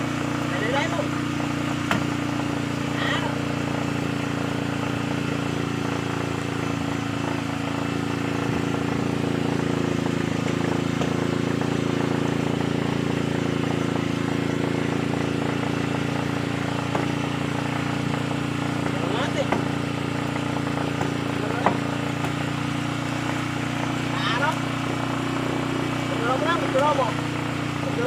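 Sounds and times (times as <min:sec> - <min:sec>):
boat engine idling: 0:00.0 - 0:28.0.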